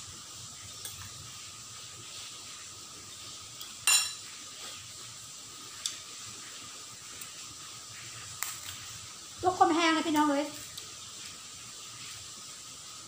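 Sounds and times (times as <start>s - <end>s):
cutlery clinking on tableware: 3.6s - 4.2s.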